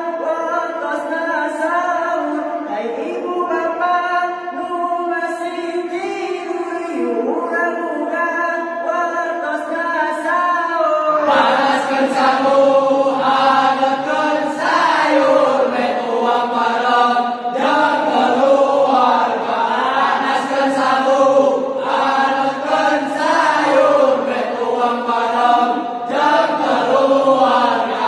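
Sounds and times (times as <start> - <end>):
men singing in chorus: 11.2 - 28.0.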